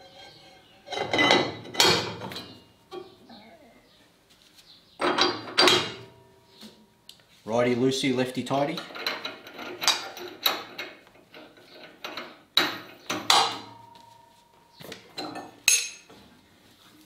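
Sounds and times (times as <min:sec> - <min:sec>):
metal clinks and knocks: 0:00.9 - 0:03.1, 0:05.0 - 0:06.3, 0:08.8 - 0:14.4, 0:15.1 - 0:16.2.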